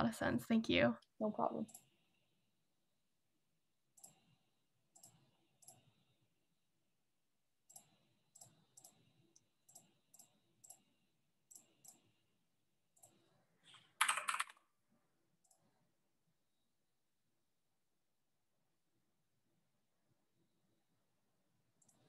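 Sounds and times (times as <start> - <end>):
computer keyboard keystrokes: 13.9 - 14.6.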